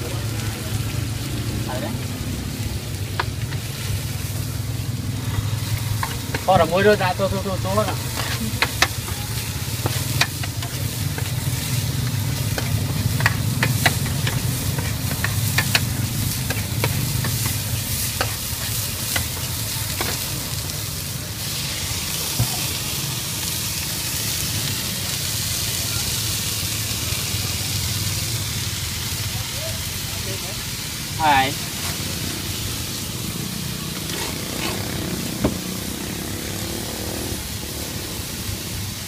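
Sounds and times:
vegetables sizzling on a griddle: 0.0 - 39.0
metal spatula scraping and clicking: 7.8 - 11.5, 12.2 - 20.2.

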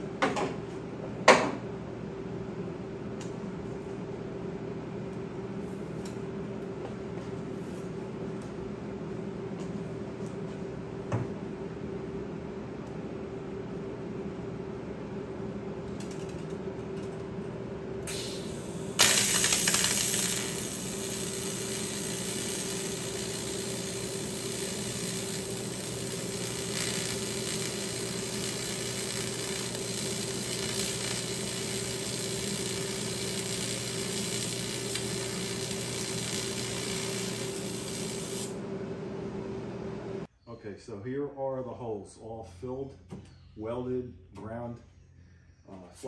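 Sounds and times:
welding arc crackling and sizzling: 18.1 - 38.6
welding arc strike: 18.1 - 38.6.

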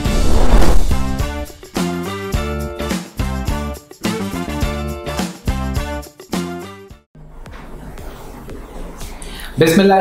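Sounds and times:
upbeat jingle music: 1.2 - 6.8.

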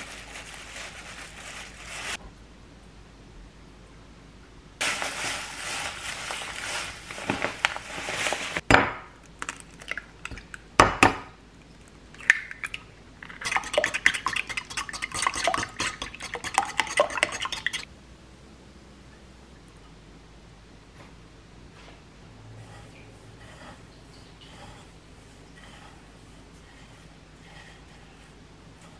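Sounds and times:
breadcrumbs pouring from plastic bag: 4.8 - 8.6
eggs beaten in bowl clicking: 12.2 - 17.9.

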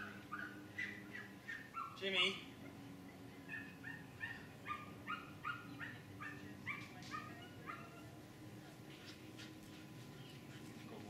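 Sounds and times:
dog yelping barks: 0.0 - 2.0, 3.4 - 8.2.

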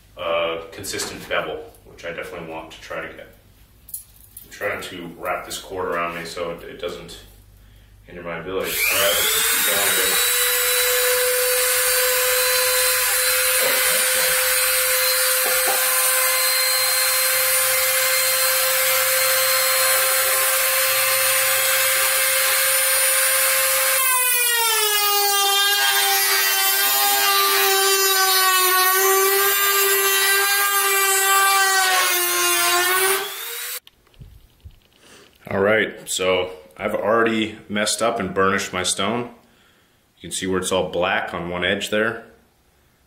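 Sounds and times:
rotary grinder whining on steel: 8.7 - 33.8.

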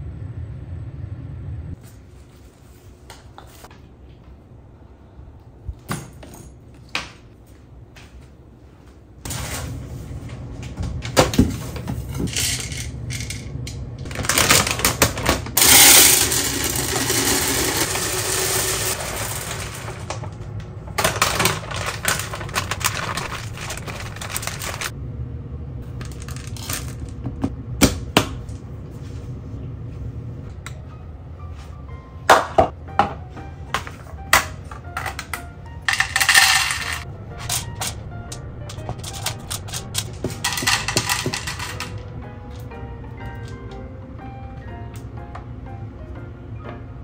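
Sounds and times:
foil bag crinkling: 14.1 - 15.8, 21.0 - 24.9
kibble clattering and rattling: 21.0 - 24.9, 26.0 - 27.2, 35.9 - 38.0, 38.7 - 42.1.

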